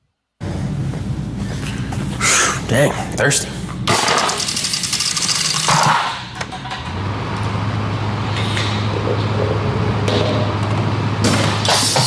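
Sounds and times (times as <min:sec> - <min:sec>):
steady low hum: 0:00.4 - 0:12.0
objects knocking and clattering: 0:03.9 - 0:07.0.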